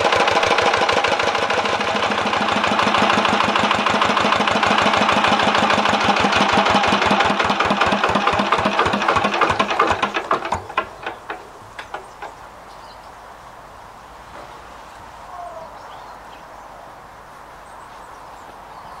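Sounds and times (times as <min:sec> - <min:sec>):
diesel engine shutting down: 0:00.0 - 0:12.4.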